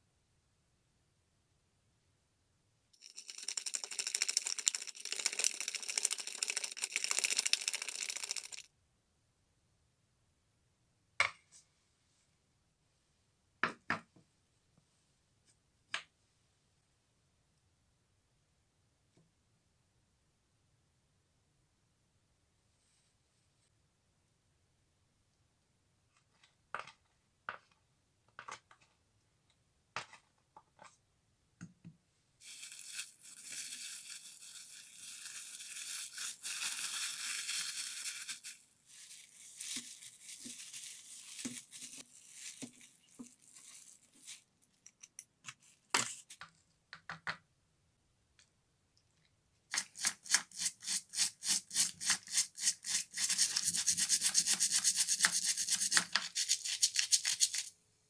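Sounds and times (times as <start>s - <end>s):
plastic cling film crinkling: 32.4s - 44.8s.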